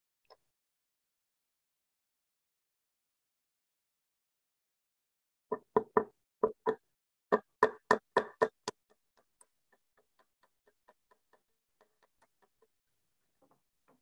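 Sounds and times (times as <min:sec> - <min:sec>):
hammer tapping nails into wood: 0:05.5 - 0:12.7.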